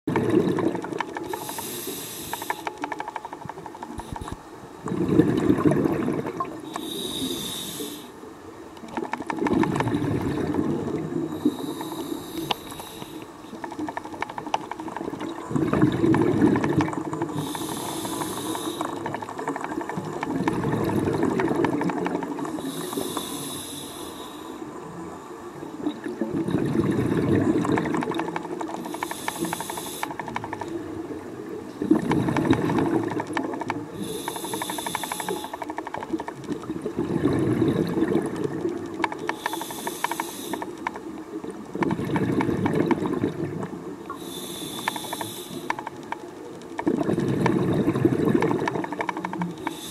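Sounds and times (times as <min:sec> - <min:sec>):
exhaled bubbles rushing: 0:00.1 - 0:01.2, 0:03.4 - 0:06.6, 0:08.9 - 0:11.6, 0:13.6 - 0:22.6, 0:25.8 - 0:29.5, 0:30.2 - 0:34.0, 0:36.0 - 0:39.2, 0:41.4 - 0:44.0, 0:46.8 - 0:49.6
regulator hissing inhale: 0:01.2 - 0:02.8, 0:06.6 - 0:08.2, 0:11.3 - 0:13.4, 0:17.2 - 0:19.1, 0:22.5 - 0:24.7, 0:28.8 - 0:30.3, 0:34.0 - 0:35.8, 0:39.2 - 0:40.9, 0:44.1 - 0:45.9, 0:49.6 - 0:49.9.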